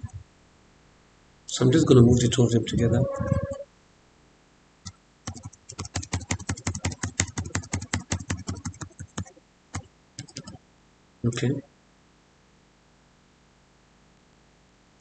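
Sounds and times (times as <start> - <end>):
keyboard keys tapping: 5.3 - 10.6.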